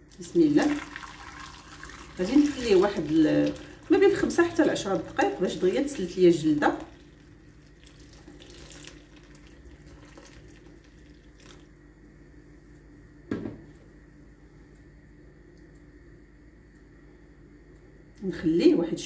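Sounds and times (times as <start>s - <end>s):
water pouring from kettle: 0.1s - 11.6s
thump: 13.3s - 13.7s.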